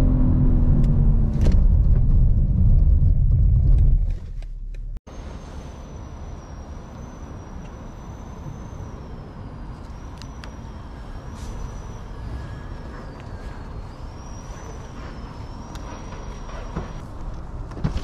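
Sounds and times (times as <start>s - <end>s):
traffic rumble: 0.0s - 18.0s
faint high whine: 5.1s - 17.0s.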